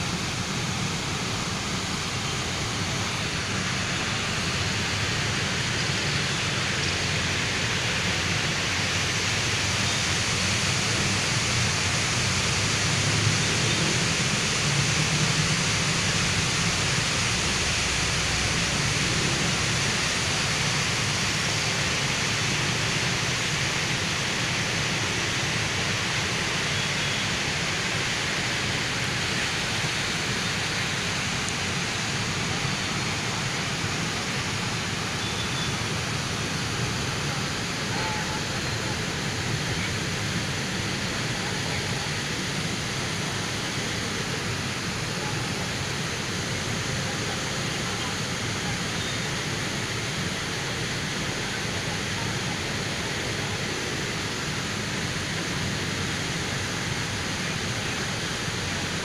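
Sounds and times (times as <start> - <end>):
river water pouring over a weir: 0.0 - 59.0.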